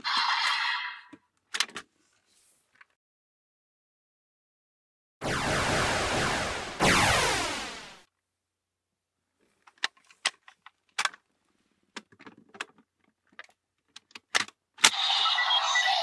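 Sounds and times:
plastic toy clicks and rattles: 12.0s - 15.2s
toy electronic sound effects: 14.8s - 16.0s.

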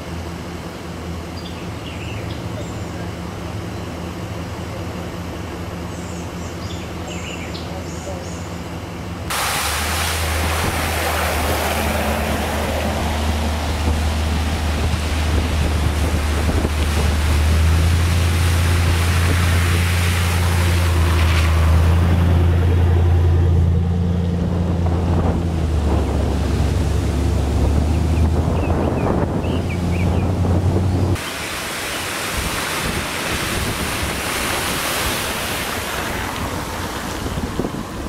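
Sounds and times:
truck engines running: 0.0s - 38.0s
tyres splashing through floodwater: 0.0s - 38.0s
wind rumbling on microphone: 9.3s - 38.0s.

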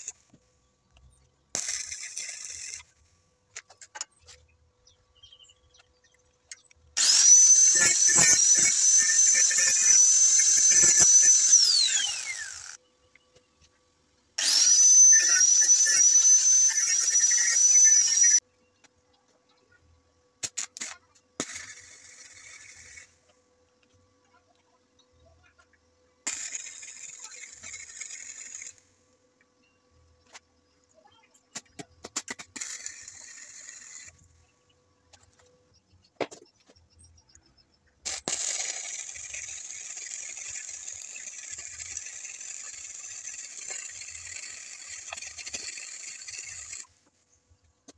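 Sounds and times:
grinder disc spinning down: 1.6s - 3.0s, 7.0s - 12.8s, 14.4s - 18.4s, 26.3s - 29.0s, 38.1s - 47.0s
welding arc crackling: 1.6s - 3.1s, 7.0s - 12.8s, 26.2s - 28.9s, 38.0s - 47.0s
angle grinder whining: 7.0s - 12.8s, 14.4s - 18.4s, 38.1s - 47.0s.

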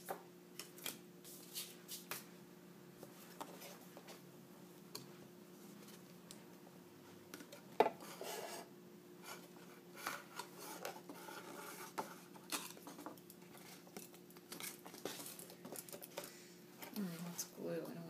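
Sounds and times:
plastic and cardboard handling: 9.3s - 16.3s.

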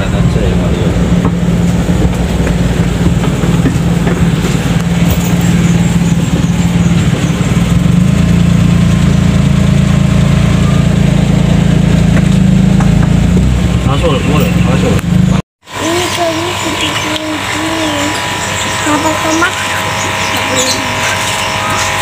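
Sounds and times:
car engine running: 0.0s - 22.0s.

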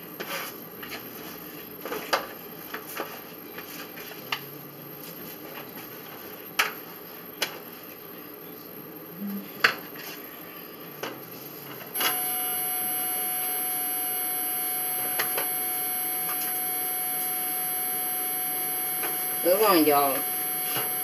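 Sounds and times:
steady electrical hum: 4.2s - 21.0s.

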